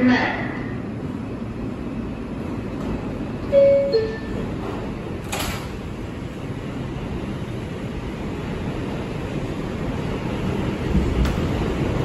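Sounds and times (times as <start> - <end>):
steady hum: 0.0 - 12.0
two-note door chime: 3.6 - 4.4.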